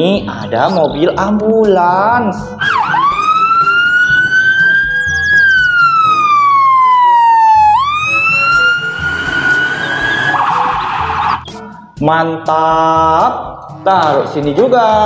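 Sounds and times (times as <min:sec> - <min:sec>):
ambulance siren wailing: 0:02.4 - 0:11.7.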